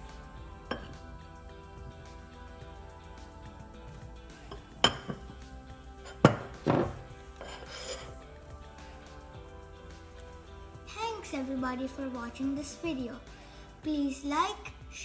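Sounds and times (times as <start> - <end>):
background music with held notes: 0.0 - 15.0
spoon clinking on ceramic mug: 0.7 - 1.0, 4.5 - 5.4.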